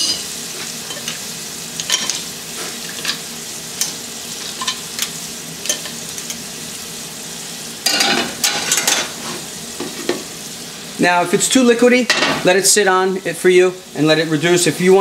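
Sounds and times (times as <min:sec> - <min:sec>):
metal tongs clinking on pan: 0:00.0 - 0:01.2, 0:01.8 - 0:02.2, 0:02.9 - 0:03.2, 0:03.8 - 0:06.4, 0:07.8 - 0:09.1
gas burner hissing: 0:00.0 - 0:15.0.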